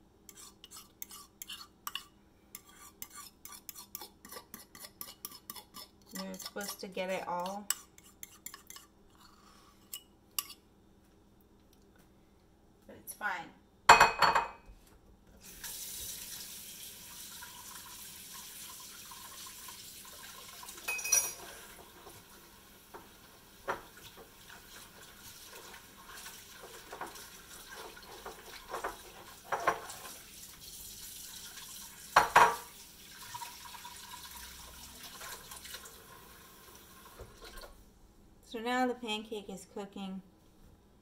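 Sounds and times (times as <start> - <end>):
dishes clinking in sink: 13.9 - 14.7, 20.7 - 21.7, 28.2 - 30.0, 32.1 - 32.7.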